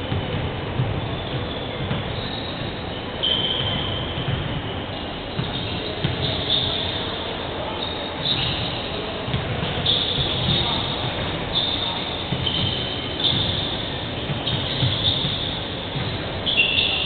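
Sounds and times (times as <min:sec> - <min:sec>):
hall hubbub: 0:00.0 - 0:17.0.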